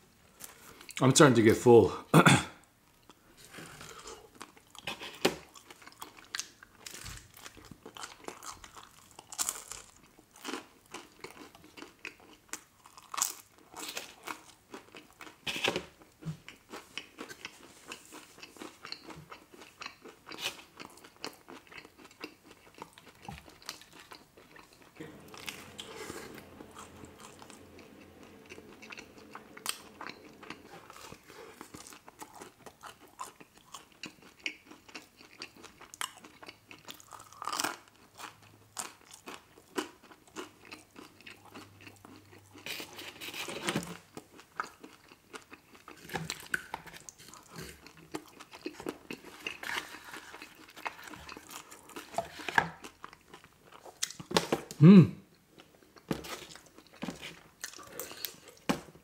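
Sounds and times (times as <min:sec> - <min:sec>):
biting and chewing pizza: 0:03.7 - 0:54.9.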